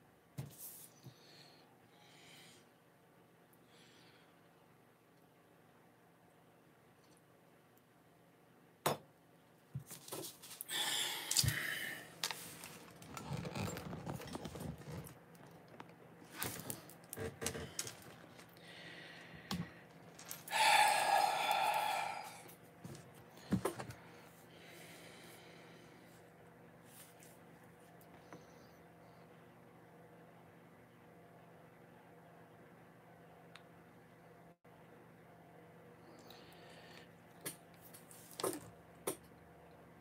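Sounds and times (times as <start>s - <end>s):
rustling and scraping: 9.8s - 10.6s, 12.1s - 18.6s.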